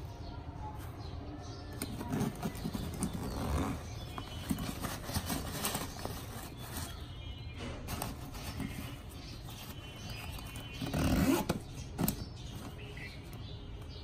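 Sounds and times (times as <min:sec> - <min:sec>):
backpack fabric rustling: 0:01.8 - 0:07.0, 0:08.0 - 0:12.6.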